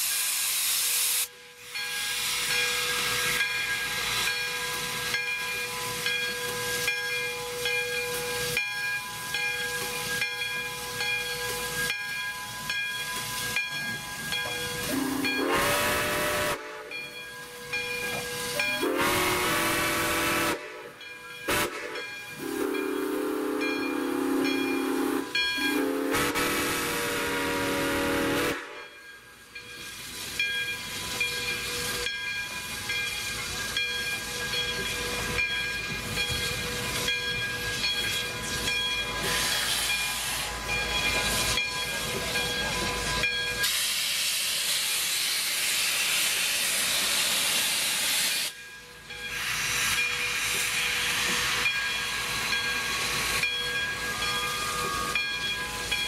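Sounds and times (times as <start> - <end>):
steam hissing: 0.0 - 56.0
steam locomotive whistle blasts: 14.8 - 17.5, 18.2 - 29.0, 42.9 - 48.6.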